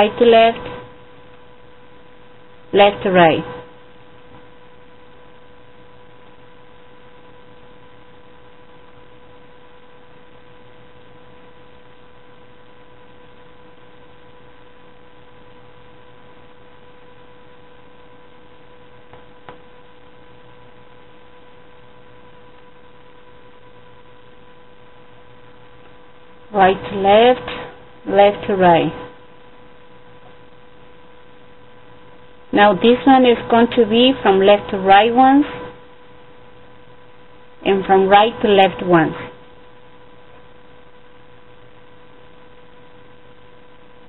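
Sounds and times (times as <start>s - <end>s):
electrical hum with hiss: 0.0s - 44.0s.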